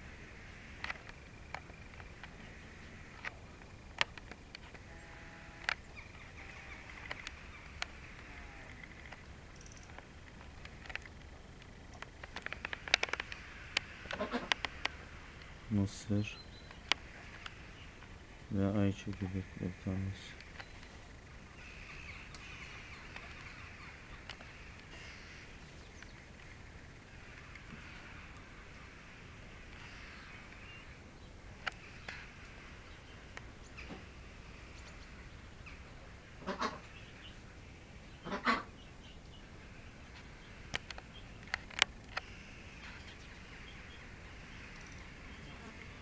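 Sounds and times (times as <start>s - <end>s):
steady high hiss: 0.0s - 46.0s
birds cracking seeds: 0.3s - 37.5s, 38.2s - 46.0s
sharp clicks: 6.8s - 15.5s.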